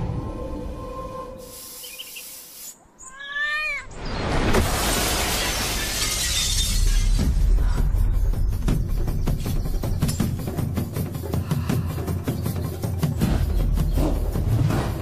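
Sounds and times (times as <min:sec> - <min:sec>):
glass window breaking: 0:04.3 - 0:07.3.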